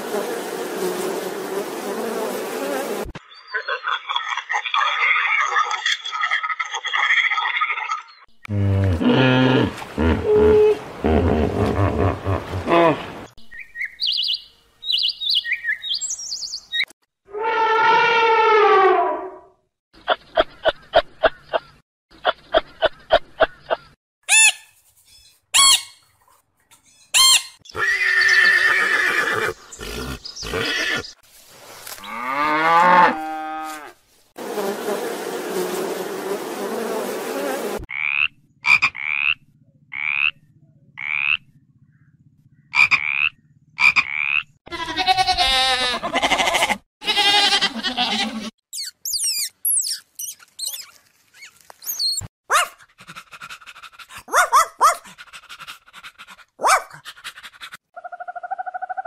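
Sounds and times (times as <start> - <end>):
horse whinnying: 27.7 - 31.1
frog chirping and croaking: 37.9 - 44.6.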